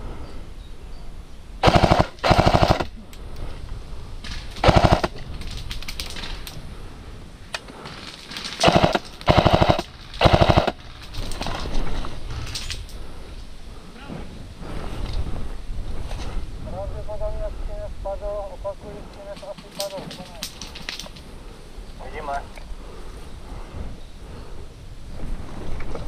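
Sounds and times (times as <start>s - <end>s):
airsoft machine gun bursts: 1.6s - 2.9s, 4.6s - 5.2s, 8.6s - 10.8s.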